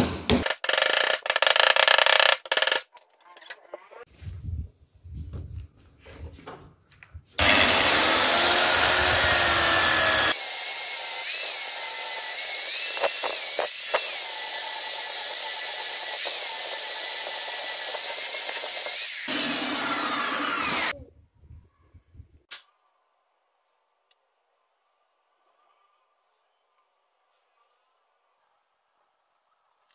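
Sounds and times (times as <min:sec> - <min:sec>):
electric belt sander running: 0:07.4 - 0:10.5.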